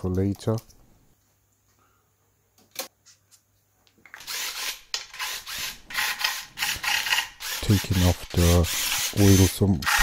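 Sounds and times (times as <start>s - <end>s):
cordless impact wrench bursts: 4.2s - 10.0s.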